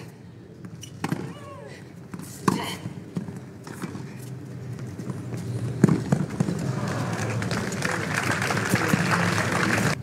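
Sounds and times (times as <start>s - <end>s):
footfalls on hard court: 4.8s - 6.9s
crowd applause: 6.6s - 10.0s.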